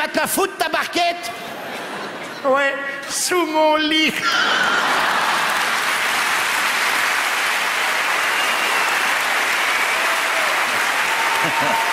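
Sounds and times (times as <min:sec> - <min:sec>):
audience applauding: 0:04.3 - 0:11.9.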